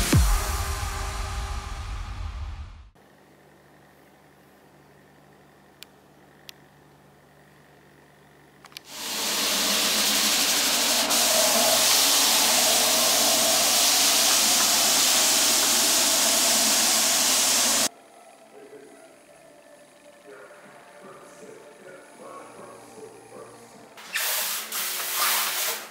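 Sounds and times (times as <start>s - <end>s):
faint hum: 0.0s - 24.0s
small clicks: 8.6s - 8.9s
cutting plotter hissing: 8.9s - 17.9s, 18.5s - 25.9s.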